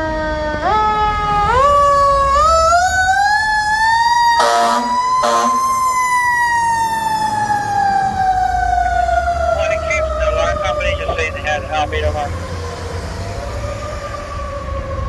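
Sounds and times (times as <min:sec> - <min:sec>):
air horn blasts: 0:04.4 - 0:05.7.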